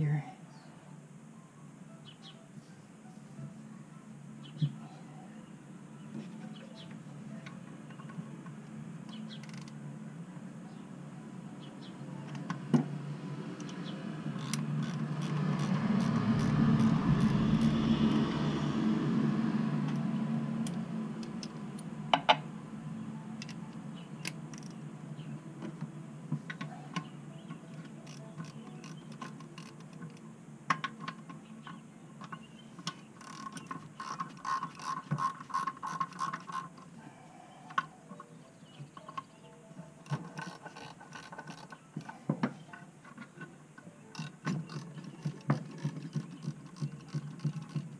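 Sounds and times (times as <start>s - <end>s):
low steady hum: 0.0s - 47.9s
rush of noise: 12.5s - 23.0s
hand ratchet clicking: 14.4s - 16.9s, 28.0s - 30.1s, 32.9s - 36.8s.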